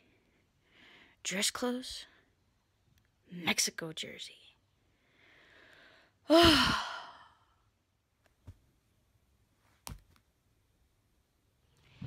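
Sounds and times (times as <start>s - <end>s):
woman sighing: 6.2s - 7.5s.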